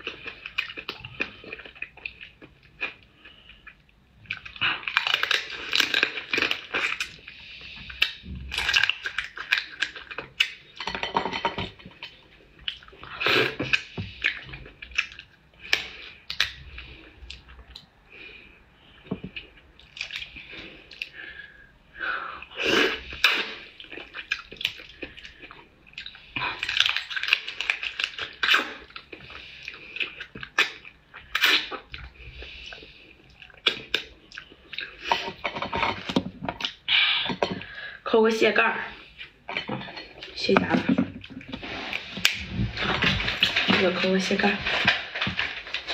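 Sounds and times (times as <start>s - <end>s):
sucking and chewing: 0.0s - 10.8s, 11.7s - 21.4s, 22.4s - 37.8s.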